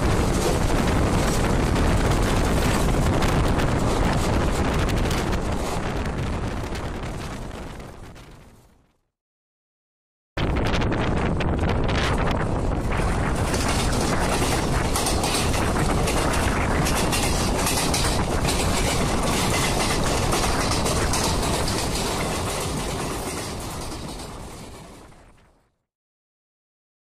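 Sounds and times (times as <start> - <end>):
wheels clattering over rail joints: 0.0 - 7.4, 12.5 - 25.4
train rushing past: 0.0 - 7.8, 12.2 - 25.1
wind noise: 0.0 - 8.9, 10.4 - 25.5.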